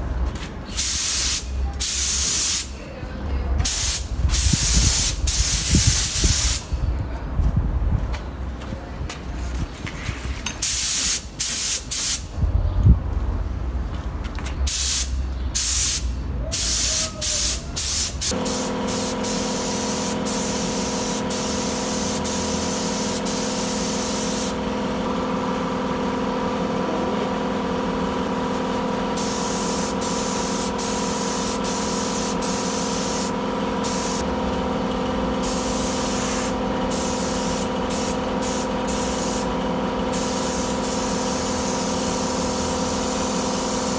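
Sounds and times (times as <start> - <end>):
spray gun hissing: 14.7 - 24.7, 29.2 - 34.2, 35.4 - 43.9
air compressor humming: 14.7 - 43.9.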